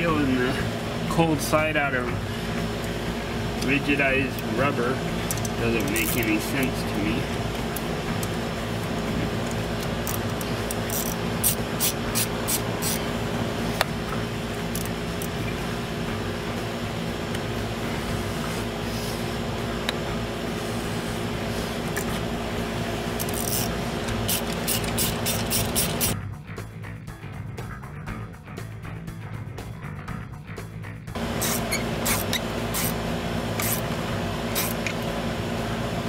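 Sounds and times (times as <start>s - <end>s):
steady background hum: 0.0s - 26.2s, 31.1s - 36.0s
hand tools clicking and scraping: 5.2s - 6.6s, 9.3s - 13.0s, 23.2s - 26.2s, 31.2s - 35.1s.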